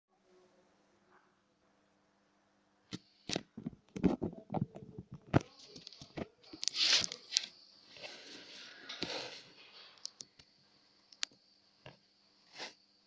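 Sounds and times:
camera rubbing and rustling: 3.3 - 10.0.

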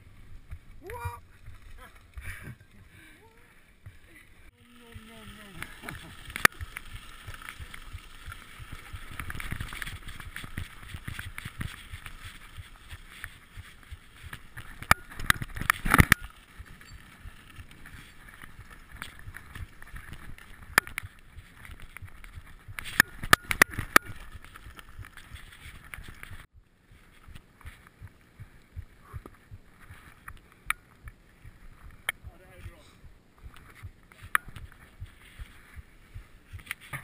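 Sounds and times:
bike rattling: 0.0 - 3.0, 3.7 - 26.5
bike tyres on loose gravel: 0.0 - 3.1, 3.7 - 26.5.

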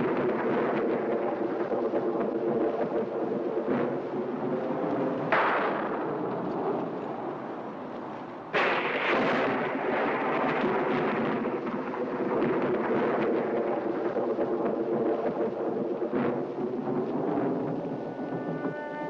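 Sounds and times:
loud rumbling effect: 8.5 - 19.0.

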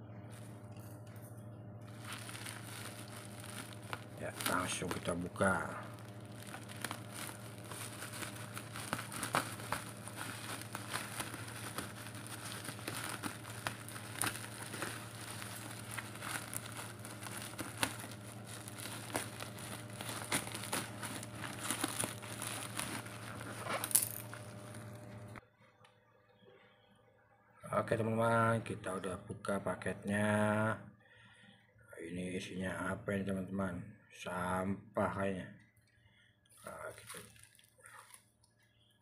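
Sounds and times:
low steady hum: 0.0 - 31.7
plastic wrapping tearing and crinkling: 1.9 - 25.3, 36.6 - 38.5.

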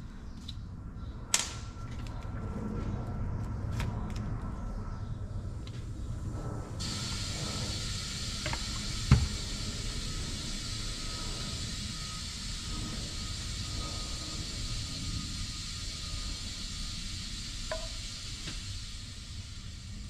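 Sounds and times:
steady hiss: 6.7 - 20.0.

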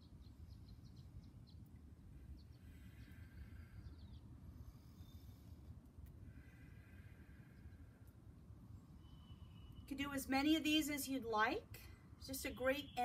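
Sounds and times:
birds chirping: 0.0 - 5.3.

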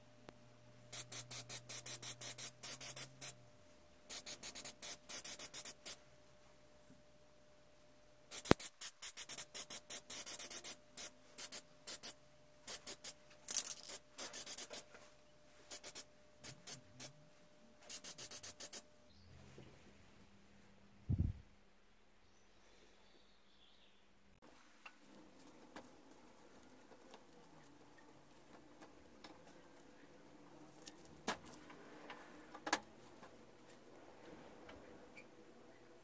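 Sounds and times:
spray paint can hissing: 0.9 - 3.4, 4.1 - 6.0, 8.3 - 14.9, 15.7 - 17.1, 17.8 - 18.8.

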